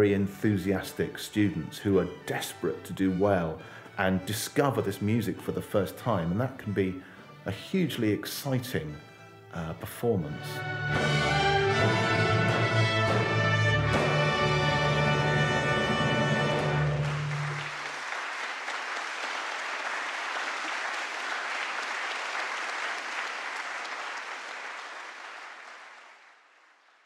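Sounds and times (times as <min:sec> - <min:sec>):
orchestra sustaining a chord: 0:00.0 - 0:17.8
audience applauding: 0:15.7 - 0:27.0.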